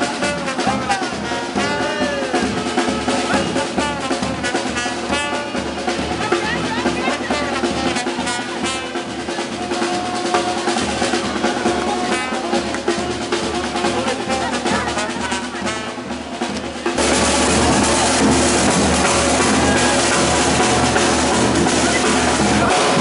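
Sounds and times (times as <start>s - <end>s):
loud dense music: 0.0s - 23.0s
snare and bass drumming: 0.0s - 23.0s.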